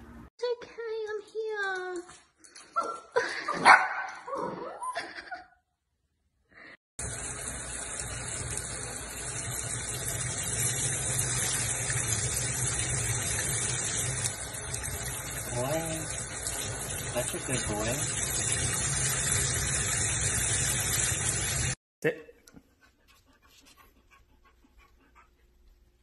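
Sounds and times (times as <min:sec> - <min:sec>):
puppy barking: 0:03.6 - 0:04.3
shower sprayer spraying water: 0:07.0 - 0:21.8.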